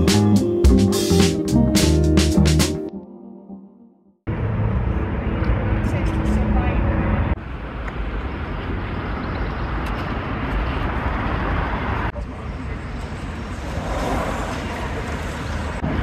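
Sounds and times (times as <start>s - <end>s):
road traffic rush: 4.2s - 16.0s.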